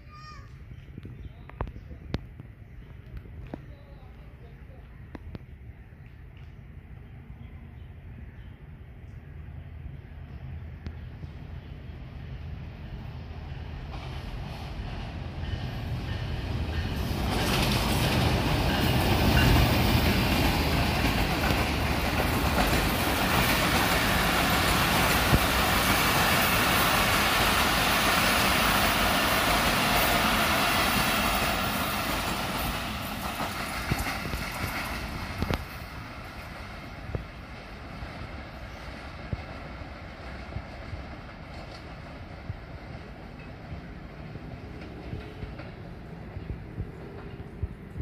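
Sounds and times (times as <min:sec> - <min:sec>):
diesel locomotive rumble: 0:06.8 - 0:48.0
train wheels on rails: 0:09.8 - 0:48.0.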